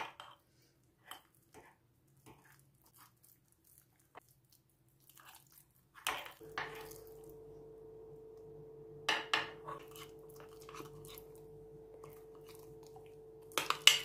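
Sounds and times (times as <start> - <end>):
low hum: 6.4 - 14.0
spoon scraping in a mug: 9.6 - 11.4.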